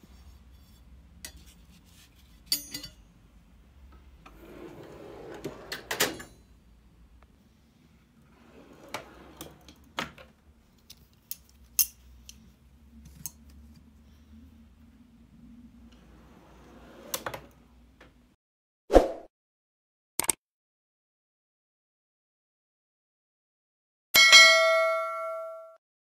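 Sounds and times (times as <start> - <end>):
metal tools clinking: 2.4 - 3.0
metal drawer sliding: 4.2 - 6.4, 8.2 - 10.3, 16.0 - 17.6
drawer clunk: 4.3 - 6.4.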